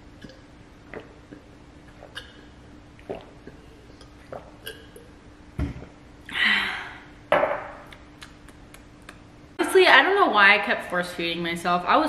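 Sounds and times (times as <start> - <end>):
person sipping water: 0.1 - 5.2
breathy exhalations: 6.3 - 7.1
glass thump on countertop: 7.3 - 7.8.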